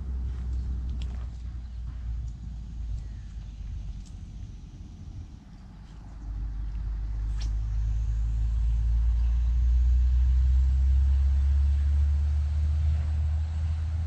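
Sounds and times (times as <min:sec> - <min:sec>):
passing vehicle rumble: 0:03.5 - 0:14.0.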